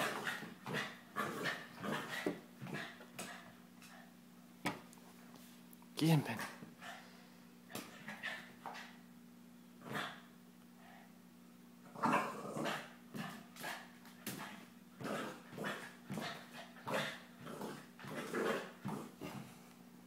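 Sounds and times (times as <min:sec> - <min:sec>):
dog barking and growling: 0:00.0 - 0:03.0, 0:09.8 - 0:10.3, 0:11.9 - 0:19.4.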